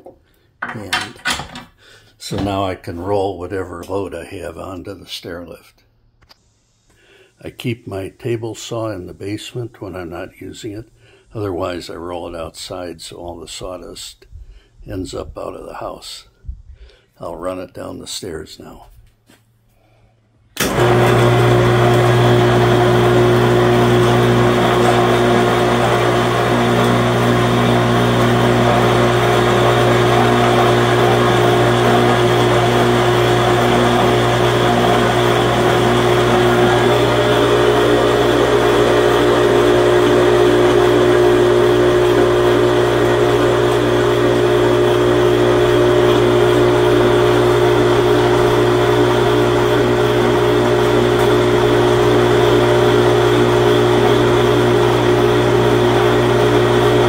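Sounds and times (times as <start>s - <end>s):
electric hoist humming: 20.6s - 57.0s.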